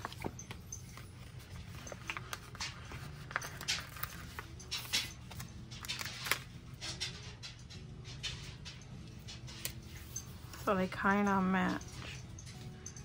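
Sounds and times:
paper crinkling and peeling: 0:00.0 - 0:06.5.

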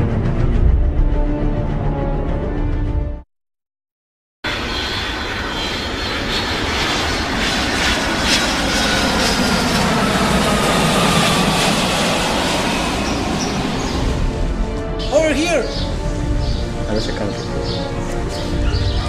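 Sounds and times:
airplane passing over: 0:04.5 - 0:19.0.

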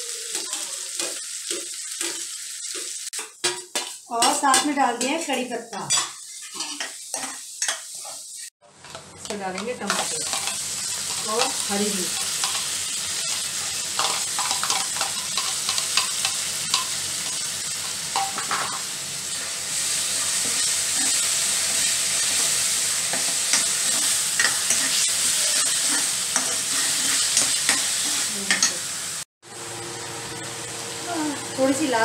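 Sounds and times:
vegetables sizzling in hot oil: 0:00.0 - 0:32.0
steel spoon scraping a pan: 0:03.7 - 0:18.7, 0:19.8 - 0:28.8.

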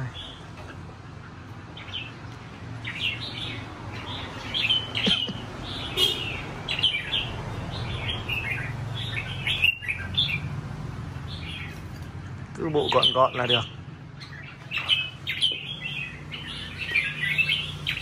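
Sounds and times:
bird warbling song: 0:00.0 - 0:18.0.

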